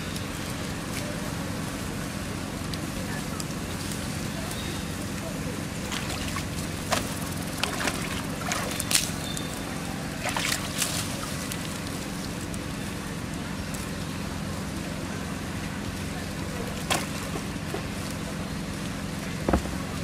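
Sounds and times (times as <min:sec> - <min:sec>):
water dripping and lapping: 0:02.7 - 0:13.4
water splashing in a tub: 0:05.8 - 0:09.3, 0:10.1 - 0:11.9.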